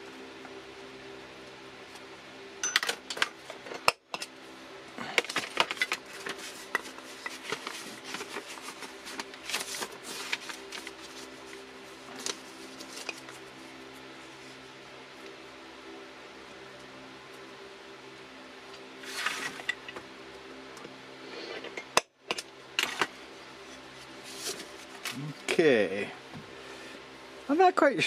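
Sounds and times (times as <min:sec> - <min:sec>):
steady low hum: 0:00.0 - 0:28.0
paper rustling: 0:05.2 - 0:13.5, 0:24.2 - 0:25.2.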